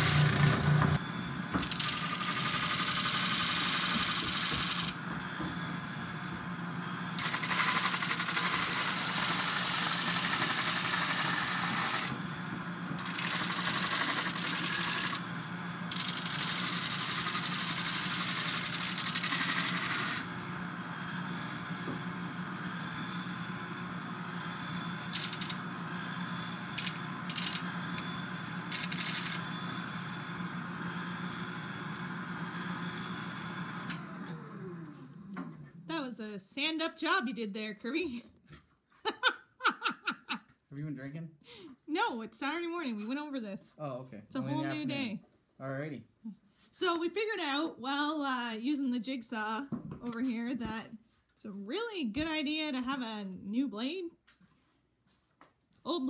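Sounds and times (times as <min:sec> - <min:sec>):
disc sander motor hum: 0:00.0 - 0:35.9.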